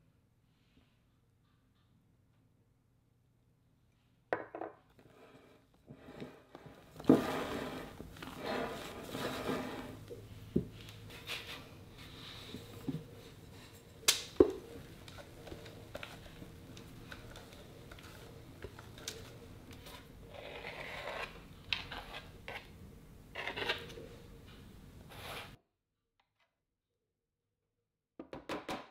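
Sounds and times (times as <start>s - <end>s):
spatula scraping batter in bowl: 15.6s - 22.7s.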